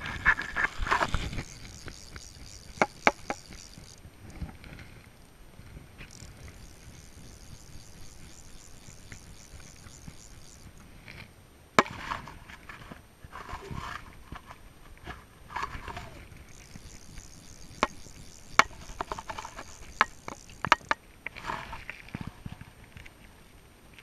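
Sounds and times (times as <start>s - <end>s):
fly reel ratchet whirring: 0.1s - 5.3s, 6.0s - 11.0s, 15.6s - 21.0s.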